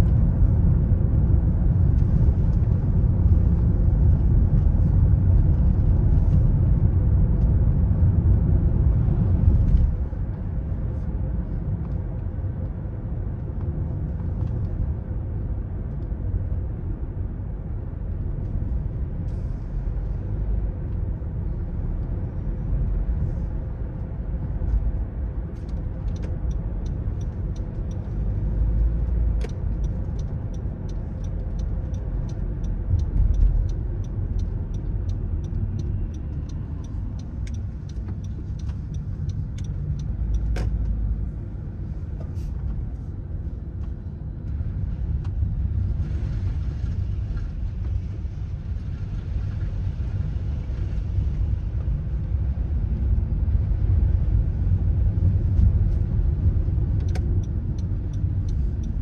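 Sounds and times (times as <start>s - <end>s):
car engine and tyre rumble: 0.0s - 59.0s
turn signal ticking: 23.8s - 45.5s, 53.7s - 59.0s.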